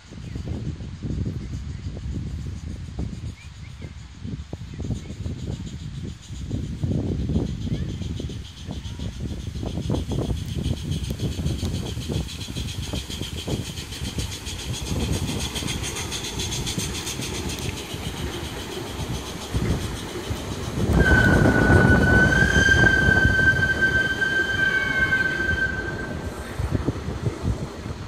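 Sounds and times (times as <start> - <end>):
wheels rumbling on rails: 5.2 - 28.0
steam locomotive chuffing: 6.0 - 28.0
high steady wheel squeal: 9.3 - 28.0.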